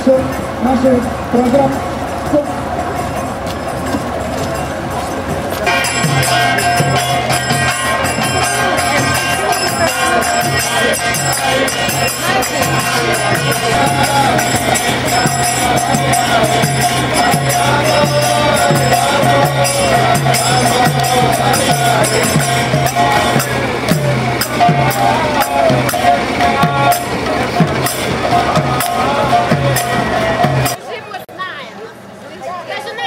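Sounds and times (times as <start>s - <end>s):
jingling hand cymbals: 0.0s - 30.8s
steady drone: 0.0s - 30.8s
regular drum beat: 5.3s - 30.8s
group singing: 5.6s - 30.8s.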